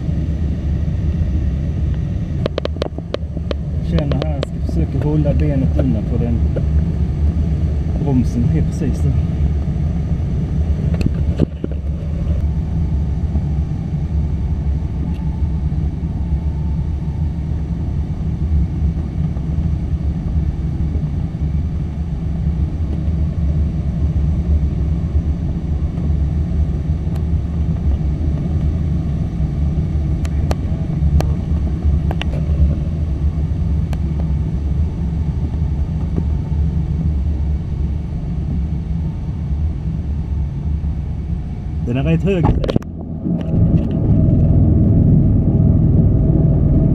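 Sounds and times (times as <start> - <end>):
low rumble of airflow: 0.0 - 46.9
sharp clicks and knocks: 2.4 - 5.1.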